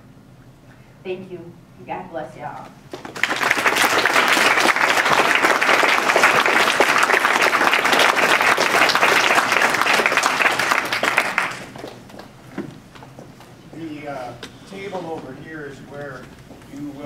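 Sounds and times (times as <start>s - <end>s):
audience applauding: 3.0s - 12.3s.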